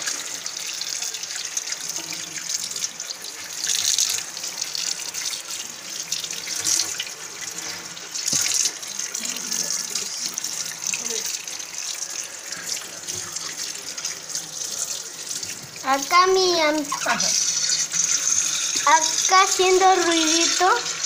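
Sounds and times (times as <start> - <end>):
tap water splashing into sink: 6.1 - 11.9.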